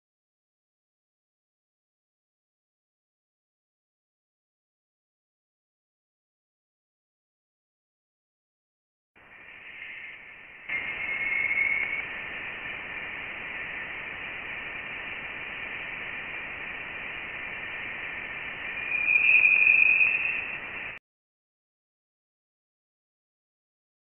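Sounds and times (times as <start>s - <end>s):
thin whistling tone: 9.2s - 12.2s, 18.2s - 21.0s
steady hiss: 9.2s - 21.0s.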